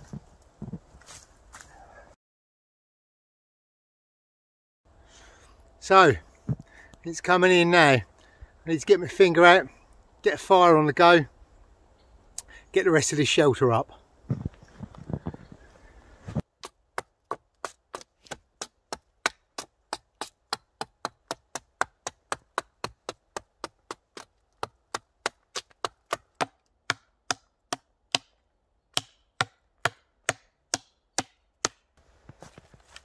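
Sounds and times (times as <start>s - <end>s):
hatchet chopping wood: 16.6s - 31.9s.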